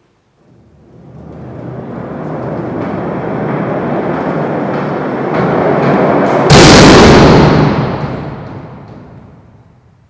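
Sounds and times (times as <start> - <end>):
loud crash: 6.2 - 9.5.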